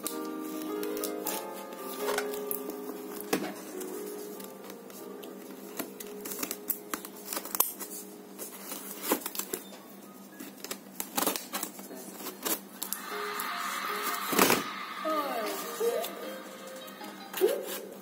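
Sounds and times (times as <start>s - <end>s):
soft background music: 0.0s - 18.0s
scissors cutting packing tape: 5.7s - 7.9s, 10.6s - 13.0s.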